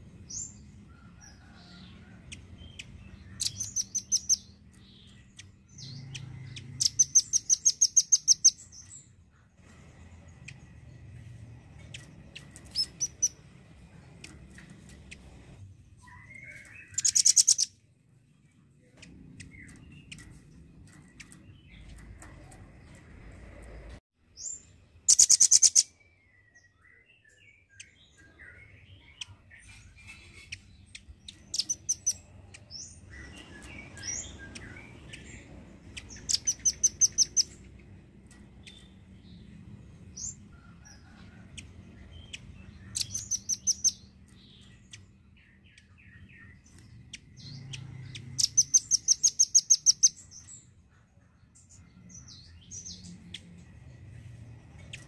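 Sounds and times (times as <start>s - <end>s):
soft bird chirps: 0.3s - 13.4s, 14.0s - 17.8s, 24.4s - 39.6s, 40.2s - 55.0s.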